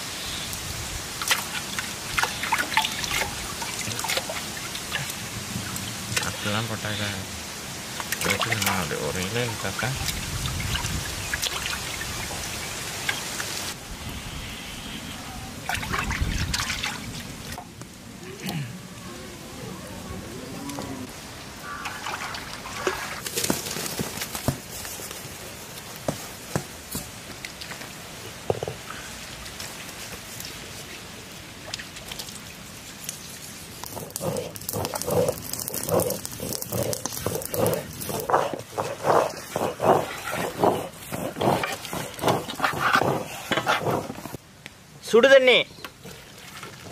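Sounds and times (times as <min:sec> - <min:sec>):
water splashing in metal basin: 0:01.2 - 0:06.4, 0:08.0 - 0:13.5, 0:15.7 - 0:17.6, 0:21.6 - 0:23.3
stone roller grinding on stone: 0:33.8 - 0:44.4.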